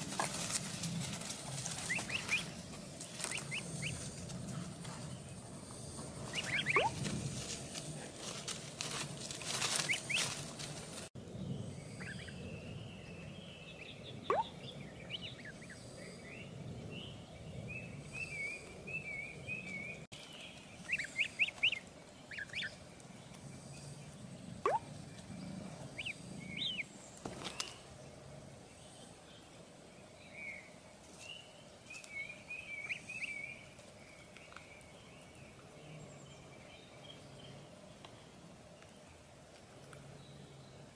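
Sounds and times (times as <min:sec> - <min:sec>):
faint woodland hum: 0:00.0 - 0:40.9
ducklings peeping: 0:01.8 - 0:04.1, 0:06.3 - 0:07.0, 0:09.8 - 0:10.3, 0:12.0 - 0:12.3, 0:14.3 - 0:15.8, 0:20.8 - 0:23.4, 0:24.6 - 0:25.3, 0:25.9 - 0:26.9.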